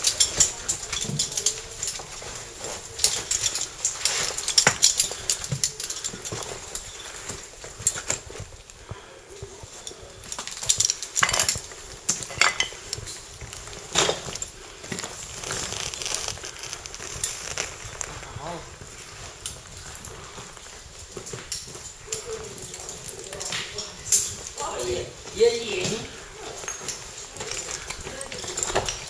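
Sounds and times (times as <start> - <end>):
metal gear clinking on stone: 0.0 - 8.4, 9.8 - 17.7, 26.5 - 29.0.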